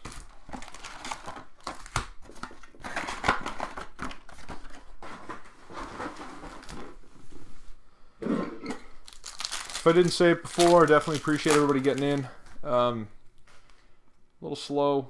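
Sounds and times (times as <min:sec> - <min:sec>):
wrappers crinkling: 0:00.0 - 0:04.8, 0:09.0 - 0:12.6
cards rustling: 0:00.0 - 0:07.0, 0:09.0 - 0:12.6.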